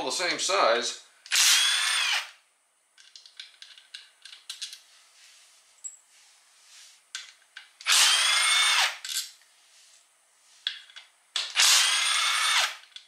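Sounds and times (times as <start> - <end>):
cordless power tool spinning bolts: 1.3 - 2.4, 7.8 - 9.0, 11.4 - 13.0.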